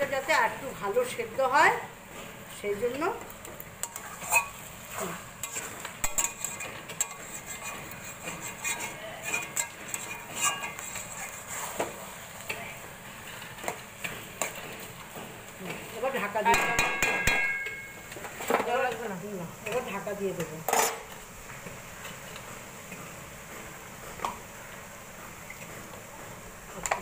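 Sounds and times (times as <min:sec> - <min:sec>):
metal spatula scraping a wok: 0:03.8 - 0:12.4, 0:15.8 - 0:19.0, 0:20.6 - 0:21.2
knocks against the pan: 0:16.4 - 0:18.7.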